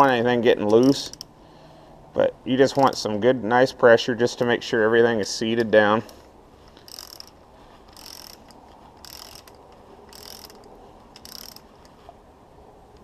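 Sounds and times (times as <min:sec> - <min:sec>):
ratchet wrench clicking: 0:00.7 - 0:01.3, 0:06.1 - 0:12.0.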